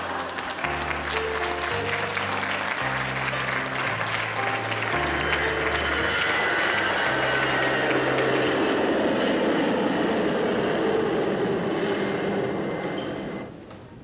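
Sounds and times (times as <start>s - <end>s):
instrumental music: 0.0s - 8.8s
audience applauding: 0.0s - 9.3s.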